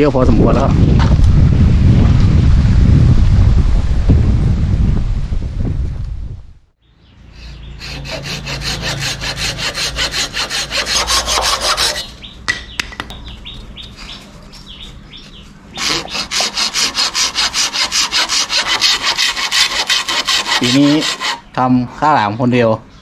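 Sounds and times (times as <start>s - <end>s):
hand saw cutting bamboo: 7.4s - 12.2s, 15.8s - 21.5s.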